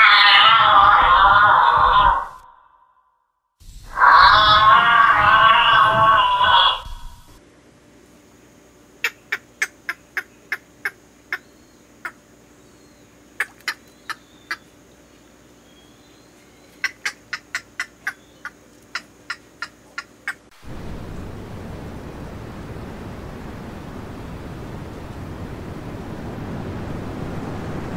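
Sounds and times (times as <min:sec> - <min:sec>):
bird clicking calls: 0:09.0 - 0:12.2, 0:13.4 - 0:14.7, 0:16.7 - 0:20.5
steady rushing noise: 0:20.4 - 0:27.9.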